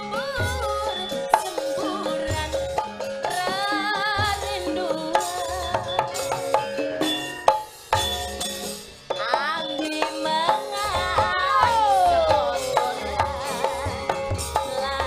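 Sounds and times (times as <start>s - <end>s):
woman singing with vibrato: 0.0s - 6.1s, 9.2s - 15.0s.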